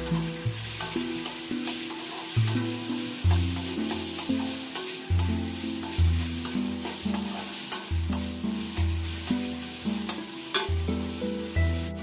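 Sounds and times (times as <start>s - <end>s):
vegetables sizzling in oil: 0.0s - 12.0s
metal spatula scraping pan: 0.2s - 10.8s
background music with bass line: 10.7s - 12.0s.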